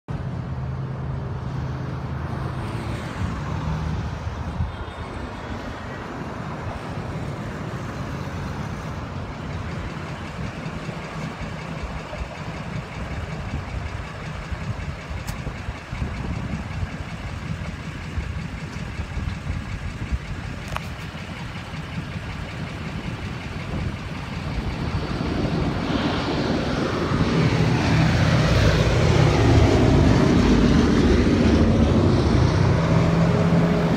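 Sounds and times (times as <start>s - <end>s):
cars and trucks passing: 0.1s - 33.9s
propeller plane engines droning: 0.1s - 33.9s.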